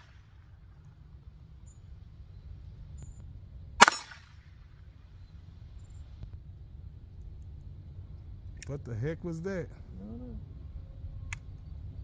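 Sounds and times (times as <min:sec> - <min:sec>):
pistol shot with echo: 0:03.8 - 0:04.5.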